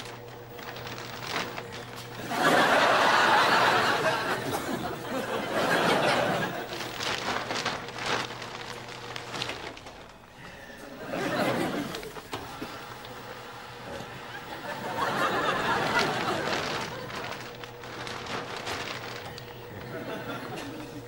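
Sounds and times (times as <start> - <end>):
plastic bin bag crackling: 0.0 - 21.0
studio audience laughter: 2.1 - 7.0, 10.8 - 17.6, 19.7 - 21.0.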